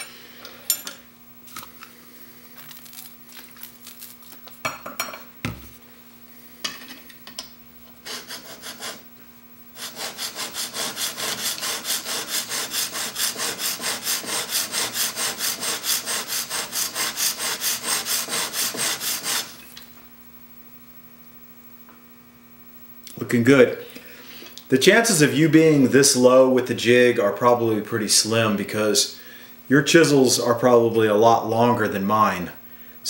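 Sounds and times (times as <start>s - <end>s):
chisel scrubbing on sharpening plate: 9.8s - 19.5s.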